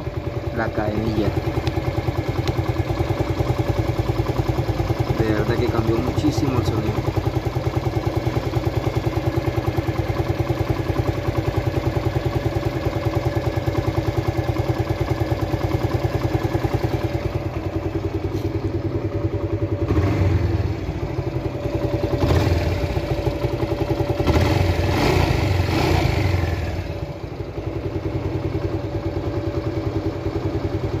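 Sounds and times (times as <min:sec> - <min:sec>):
motorcycle engine idling: 0:00.0 - 0:31.0
engine revving: 0:19.8 - 0:20.8, 0:22.2 - 0:23.0, 0:24.2 - 0:26.9.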